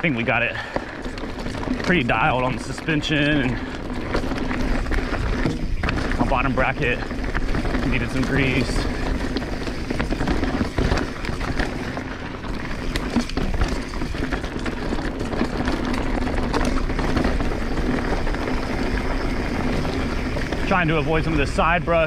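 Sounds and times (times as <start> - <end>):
bike tyres on dirt trail: 0.0 - 22.0
sharp knocks and rattles: 0.1 - 21.6.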